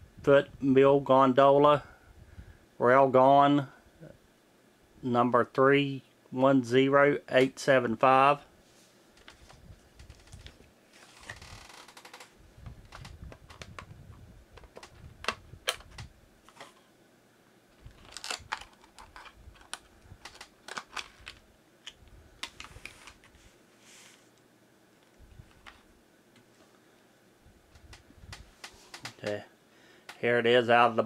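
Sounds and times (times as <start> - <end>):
packaging rustle: 17.8 - 21.4
packaging clicks and taps: 18.0 - 23.3.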